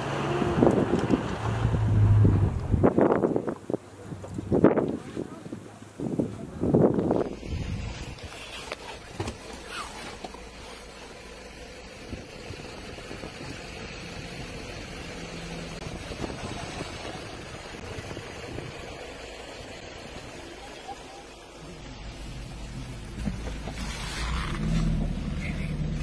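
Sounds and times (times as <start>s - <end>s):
vehicle engine idling: 5.7s - 26.0s.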